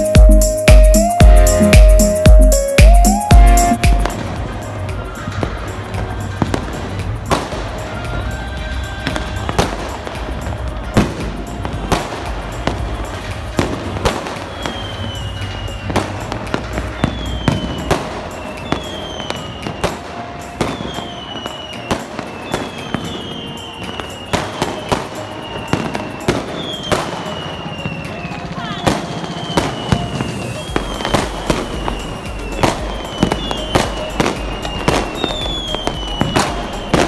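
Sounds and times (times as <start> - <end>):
whistles falling in pitch: 0.0 - 5.8, 14.1 - 37.0
fireworks bangs: 0.0 - 37.0.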